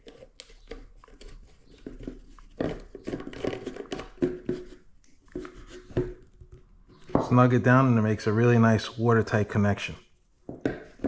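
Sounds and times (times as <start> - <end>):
plastic scraping on plastic: 0.0 - 7.3.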